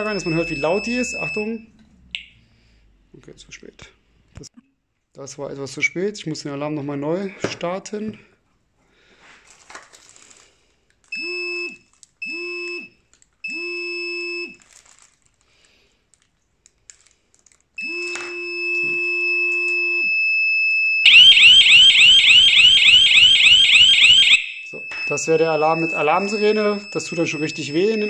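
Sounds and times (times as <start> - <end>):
car alarm short beeps: 0.0 - 2.3
alarm siren warbling wail: 0.0 - 2.4, 21.0 - 28.0
car alarm steady tone: 0.0 - 2.4, 17.8 - 28.0.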